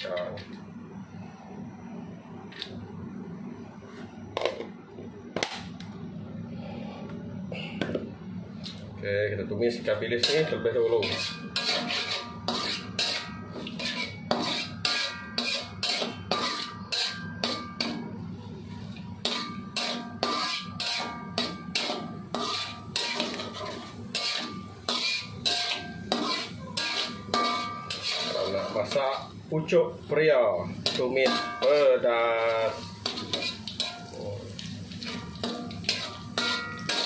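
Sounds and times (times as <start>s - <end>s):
metal spatula scraping a wok: 10.2s - 18.0s, 18.6s - 29.4s, 30.7s - 37.0s.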